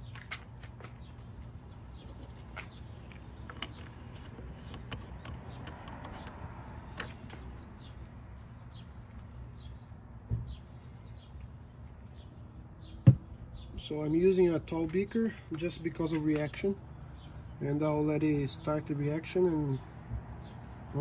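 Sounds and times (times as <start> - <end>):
soft thump: 13.0 - 13.3.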